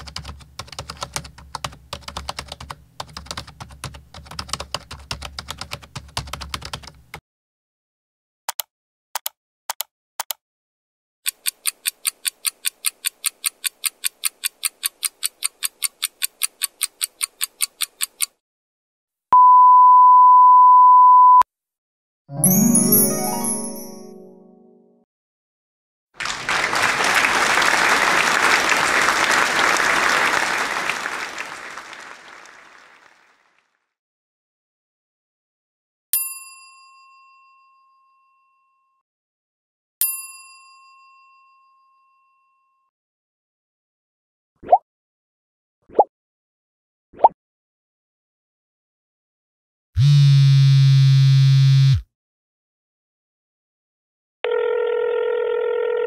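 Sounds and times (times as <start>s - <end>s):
clock ticking: 11.3s - 18.3s
censor bleep: 19.4s - 21.5s
chiming magic swoosh: 22.3s - 24.5s
crowd clapping: 26.2s - 33.7s.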